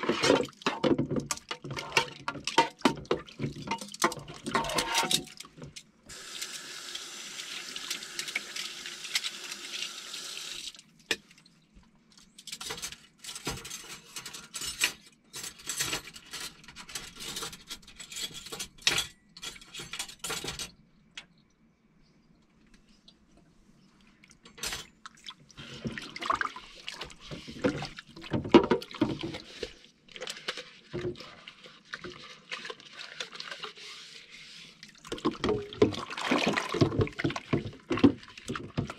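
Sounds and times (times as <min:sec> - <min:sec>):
cutlery and dishes clattering: 0:00.0 - 0:05.5, 0:12.3 - 0:20.8, 0:24.5 - 0:25.0.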